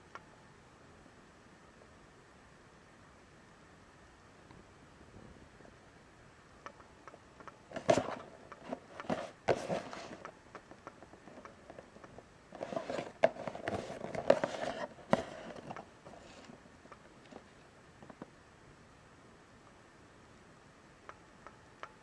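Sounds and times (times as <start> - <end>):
cardboard box scraping and crinkling: 7.8 - 10.2, 12.6 - 16.5.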